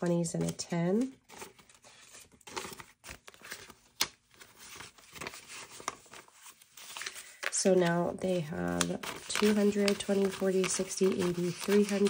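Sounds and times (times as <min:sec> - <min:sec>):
paper banknotes rustling: 0:00.4 - 0:12.0.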